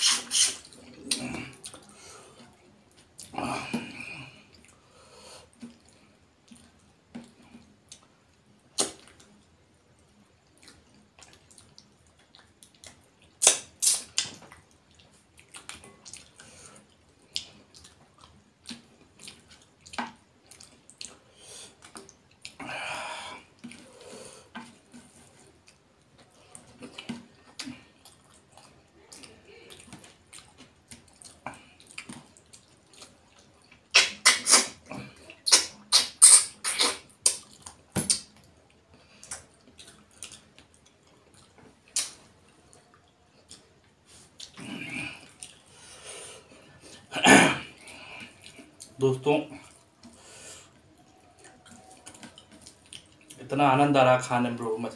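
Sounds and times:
wet mouth clicks and lip smacks: 0:00.0 - 0:01.8, 0:08.7 - 0:09.4, 0:10.5 - 0:16.5, 0:26.8 - 0:38.5, 0:39.2 - 0:42.4
person eating by hand: 0:00.0 - 0:53.6.

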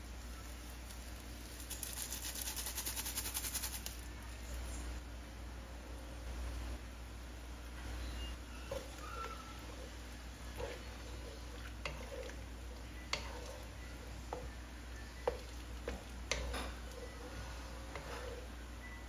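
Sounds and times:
steady low hum: 0:00.0 - 0:19.0
spatula stirring curry in wok: 0:08.7 - 0:14.6, 0:15.2 - 0:18.6
wood tapping on pan: 0:15.2 - 0:16.8.

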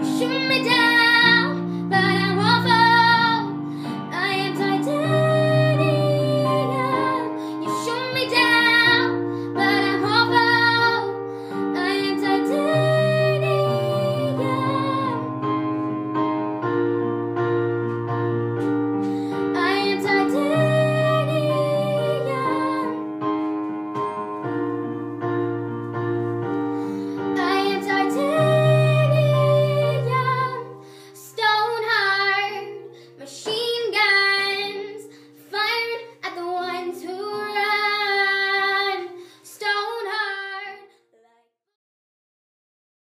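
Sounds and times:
girl singing: 0:00.0 - 0:15.5, 0:19.1 - 0:23.2, 0:26.8 - 0:41.5
sustained keyboard chords: 0:00.0 - 0:30.8.

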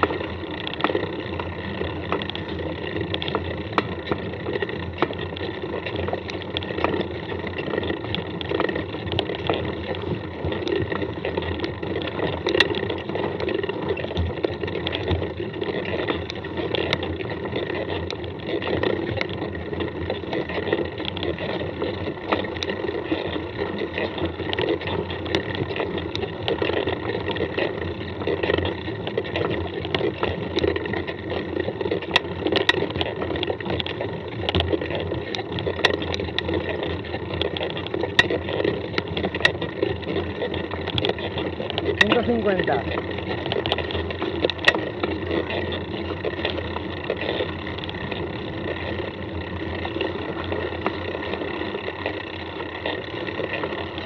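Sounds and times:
bike clicks and knocks: 0:00.0 - 0:54.0
bike tyre noise on dirt: 0:00.0 - 0:54.0.

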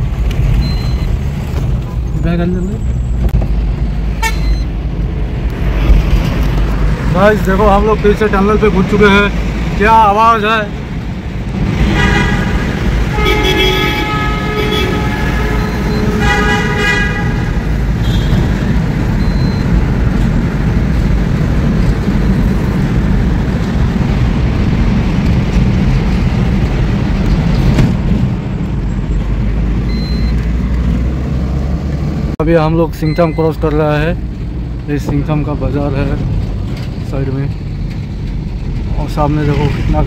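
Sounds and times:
truck engine and tyres rumbling: 0:00.0 - 0:40.0
vehicle horn blasts: 0:04.1 - 0:04.6, 0:11.9 - 0:18.6.

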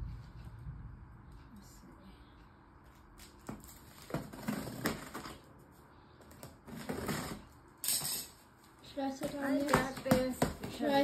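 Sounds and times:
tape ripping: 0:03.2 - 0:05.5.

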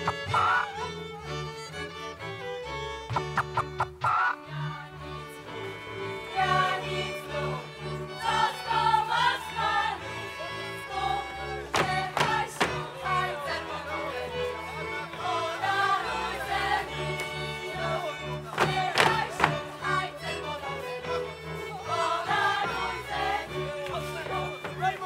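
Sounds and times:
folk string band: 0:00.0 - 0:25.0
group of voices singing: 0:04.1 - 0:25.0
sharp knocks: 0:11.7 - 0:12.8, 0:18.6 - 0:19.6.

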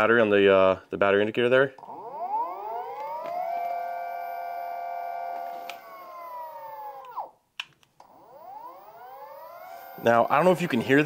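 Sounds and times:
electric motor whine: 0:01.9 - 0:07.3, 0:08.0 - 0:11.0.

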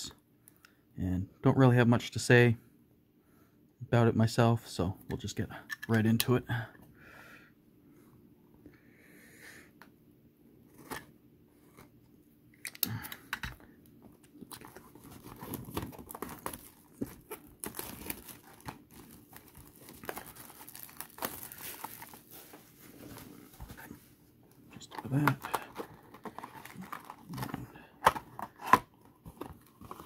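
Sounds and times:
plastic wrapping crinkling: 0:14.2 - 0:24.0, 0:24.8 - 0:27.5.

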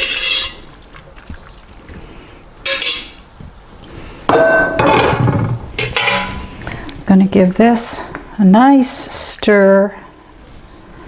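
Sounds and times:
metallic clank with ringing: 0:04.3 - 0:05.2, 0:05.8 - 0:06.4.

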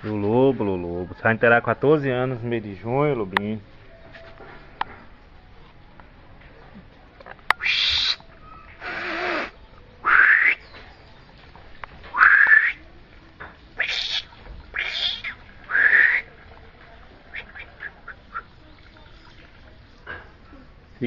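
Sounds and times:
short rising animal calls: 0:07.6 - 0:10.6, 0:12.1 - 0:12.8, 0:13.8 - 0:16.4.

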